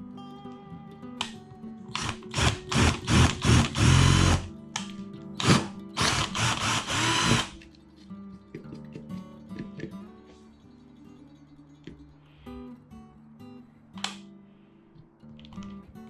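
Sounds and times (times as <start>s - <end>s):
cordless drill boring into metal: 2.0s - 4.5s, 5.4s - 7.5s.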